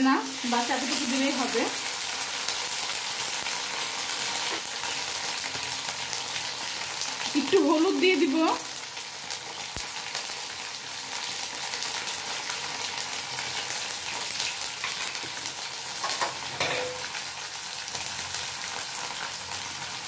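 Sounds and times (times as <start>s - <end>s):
onion sizzling in hot oil: 0.0s - 20.0s
metal spatula scraping pan: 16.1s - 17.1s.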